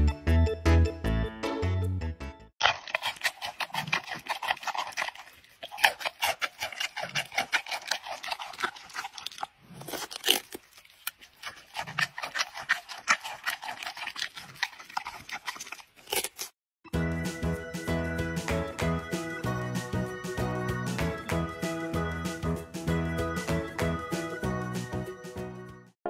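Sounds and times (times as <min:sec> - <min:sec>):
panda chewing clicks: 0:02.7 - 0:16.5.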